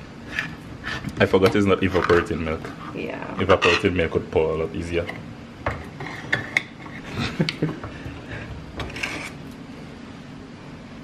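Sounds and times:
knife scraping tin lid: 0.3 - 4.0, 8.8 - 9.4.

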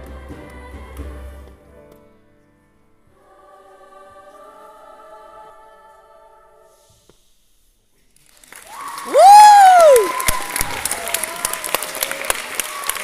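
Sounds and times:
audience applause and cheering: 8.2 - 13.0
loud whoop from crowd: 8.6 - 11.2.

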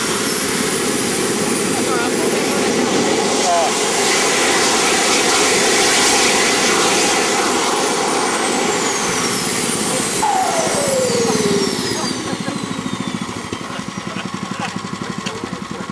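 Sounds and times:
jet engines rushing hiss: 0.0 - 15.9
falling whines: 6.6 - 14.2
rapid pulsing rumble: 6.6 - 15.9.

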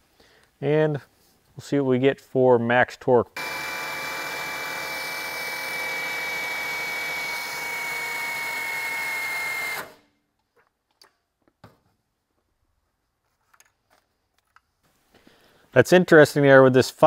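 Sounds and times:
cordless drill motor whine: 3.4 - 10.0.

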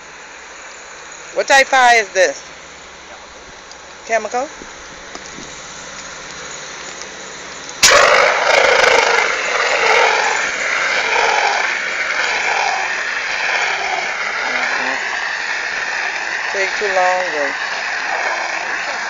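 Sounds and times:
low outdoor rush: 0.0 - 19.0
fire extinguisher hissing: 4.7 - 19.0.

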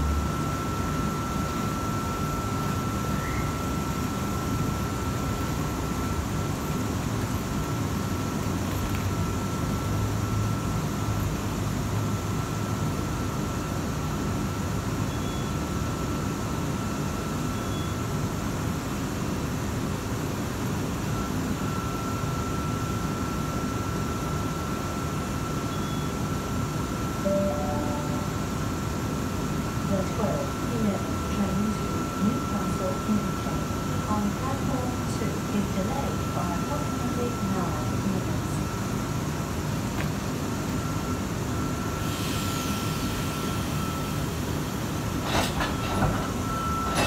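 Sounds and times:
thin high whine: 0.0 - 6.5, 27.1 - 34.9
electric train humming: 0.0 - 14.7, 26.6 - 47.0.

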